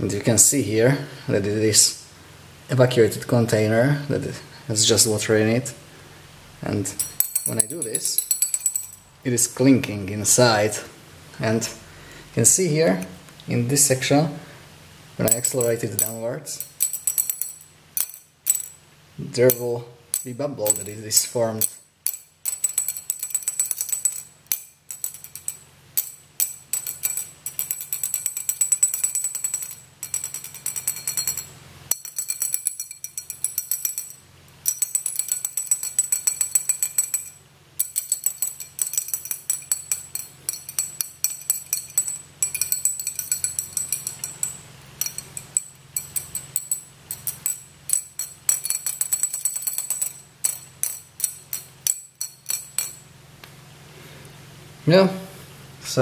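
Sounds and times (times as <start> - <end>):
water clinking in glass tube: 19.5 - 53.0.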